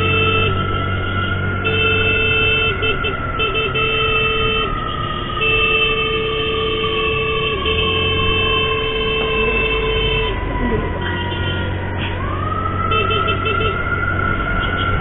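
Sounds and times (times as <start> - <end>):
vehicle horn blasts: 0.0 - 0.7, 1.6 - 10.4, 11.0 - 11.8, 12.9 - 13.8
motorcycle and traffic rumble: 0.0 - 15.0
siren wail falling in pitch: 0.0 - 15.0.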